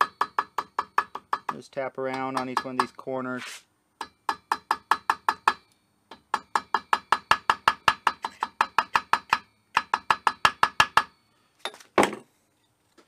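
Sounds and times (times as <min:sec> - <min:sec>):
small hammer tapping on metal: 0:00.0 - 0:03.0, 0:04.0 - 0:11.1.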